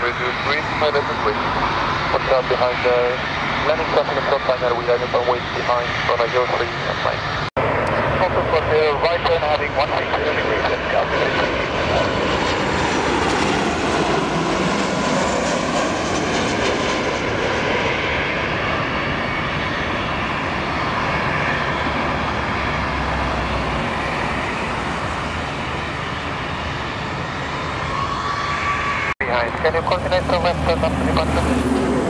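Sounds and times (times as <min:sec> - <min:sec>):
jet engines roaring overhead: 0:00.0 - 0:32.0.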